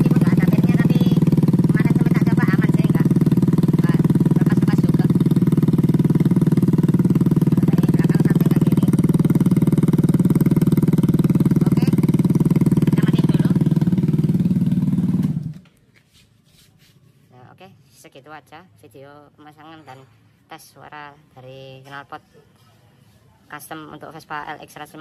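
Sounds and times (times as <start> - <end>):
scooter engine idling: 0.0 - 15.7.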